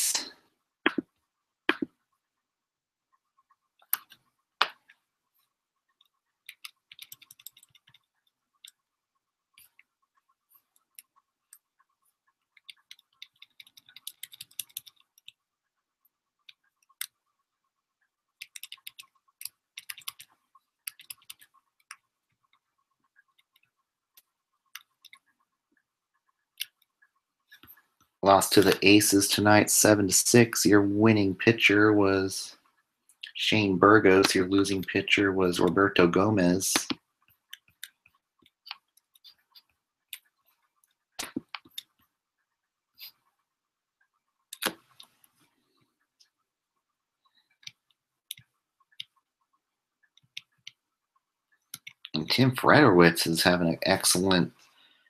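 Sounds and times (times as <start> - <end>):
computer keyboard typing: 6.0 - 8.8, 12.5 - 15.4, 18.3 - 25.3.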